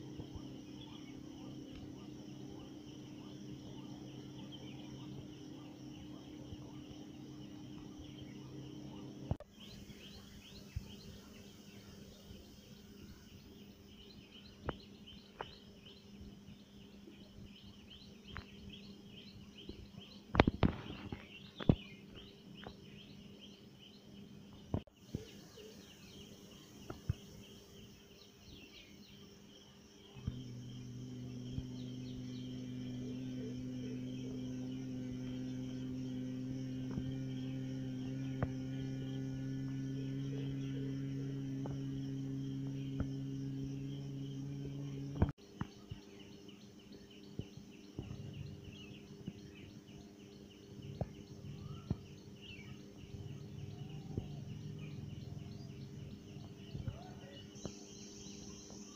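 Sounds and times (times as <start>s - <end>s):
steady low drone: 0.0s - 14.4s, 30.0s - 45.4s, 47.9s - 58.8s
birds chirping: 0.0s - 58.9s.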